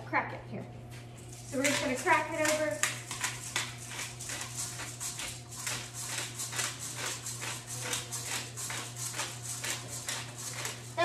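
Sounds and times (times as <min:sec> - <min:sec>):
pepper grinder grinding: 0:01.2 - 0:11.0.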